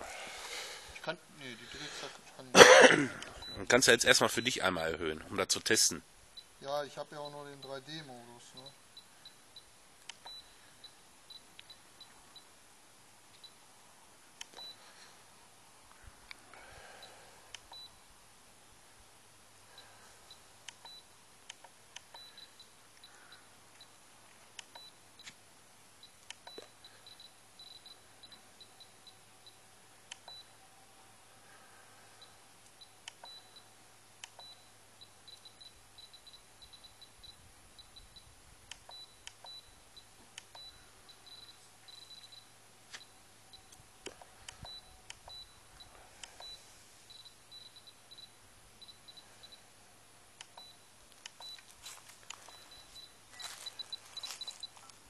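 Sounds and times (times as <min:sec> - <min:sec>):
sharp clicks: 0:10.0 - 0:10.4, 0:14.4 - 0:14.7, 0:20.6 - 0:23.1, 0:24.5 - 0:25.4, 0:30.0 - 0:30.4, 0:32.6 - 0:33.6, 0:34.2 - 0:34.6, 0:38.6 - 0:39.6, 0:40.3 - 0:40.7, 0:43.7 - 0:45.5, 0:50.3 - 0:53.1.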